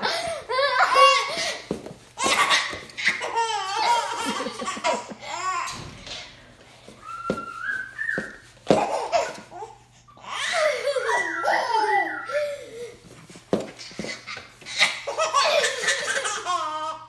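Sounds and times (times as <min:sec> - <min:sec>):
laughing and giggling: 0:02.2 - 0:05.7, 0:10.3 - 0:13.0, 0:14.0 - 0:17.0
baby bouncer knocking: 0:08.1 - 0:09.4.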